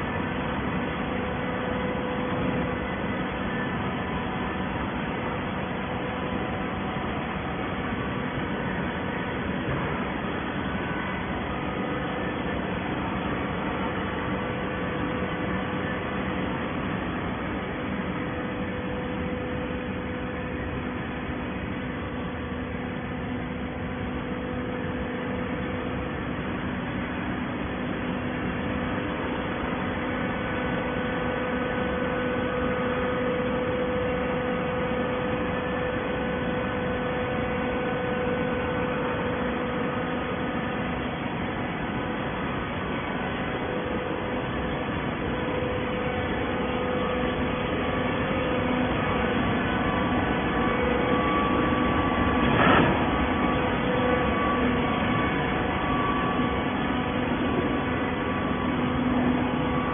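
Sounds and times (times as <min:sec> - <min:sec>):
industrial machinery droning: 0:00.0 - 0:59.9.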